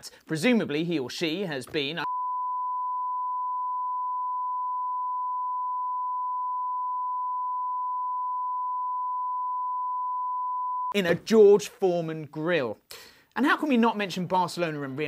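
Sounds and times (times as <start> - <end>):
censorship bleep tone: 2.0 - 11.0.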